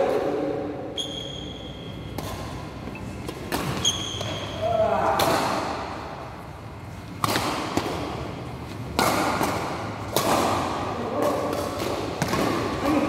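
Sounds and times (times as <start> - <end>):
racket hitting shuttlecock: 2.0 - 6.0, 7.1 - 13.0.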